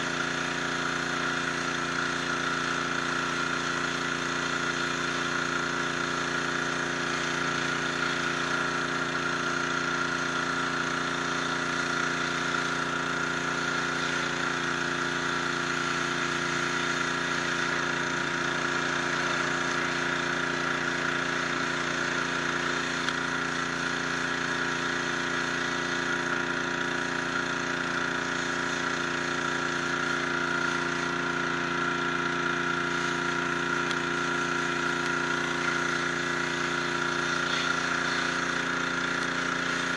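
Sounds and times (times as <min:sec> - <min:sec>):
pressure washer spraying stone: 0:00.0 - 0:39.9.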